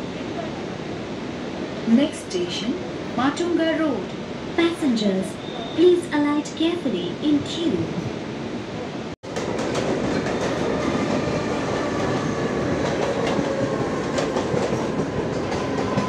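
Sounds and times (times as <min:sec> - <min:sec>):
train rumble from inside coach: 0:06.3 - 0:16.0
wheels clacking over rail joints: 0:09.2 - 0:16.0.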